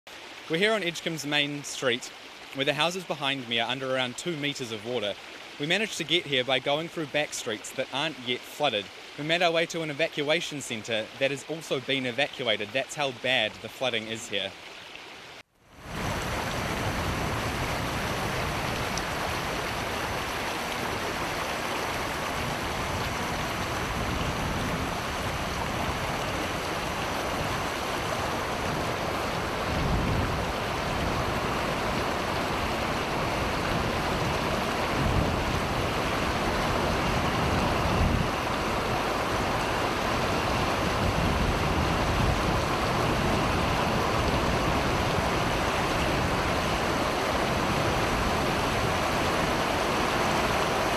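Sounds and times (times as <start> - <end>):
floodwater rushing: 0.1 - 50.9
wind on microphone: 15.8 - 50.8.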